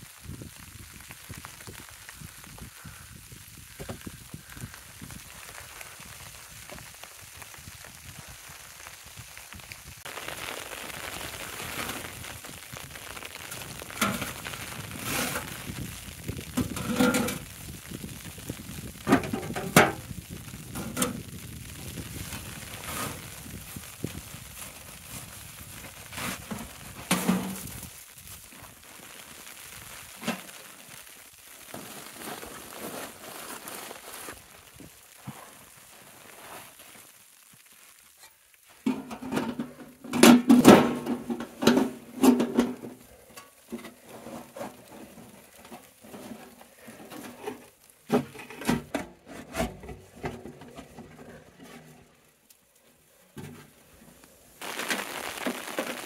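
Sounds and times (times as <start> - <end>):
food sizzling in a pan: 5.1 - 25.8, 54.4 - 56.0.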